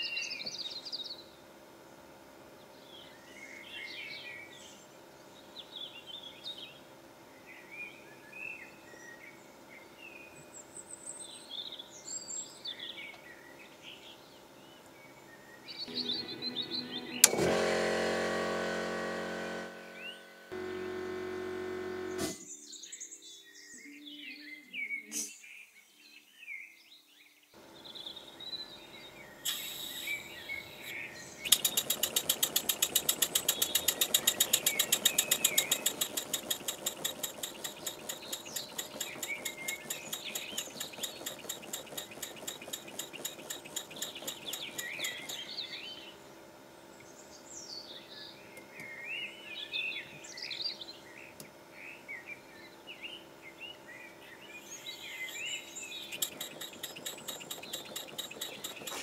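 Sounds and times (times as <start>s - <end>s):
birds chirping: 15.7s - 17.4s, 27.7s - 46.2s, 52.0s - 59.0s
small steam engine puffing: 15.9s - 22.5s, 29.5s - 45.6s, 55.3s - 59.0s
air hissing: 31.5s - 45.4s.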